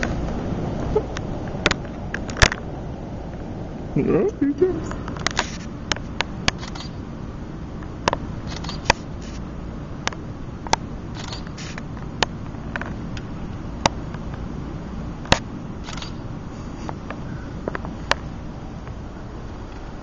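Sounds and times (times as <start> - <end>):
steady low rumble: 0.0 - 20.0
camera shutters clicking: 5.2 - 5.7, 6.5 - 7.0, 8.5 - 9.4, 11.2 - 11.8, 15.3 - 16.2.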